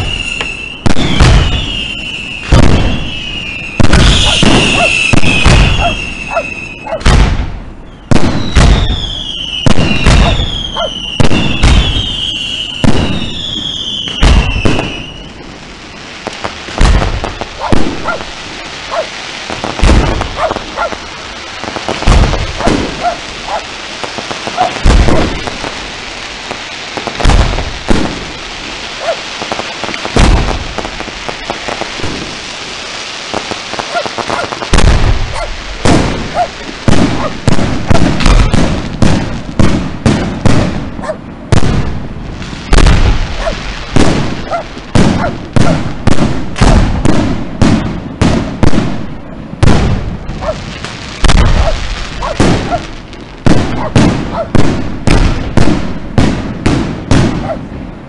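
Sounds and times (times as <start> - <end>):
fireworks bangs: 0.0 - 58.0
fireworks crackling: 0.0 - 58.0.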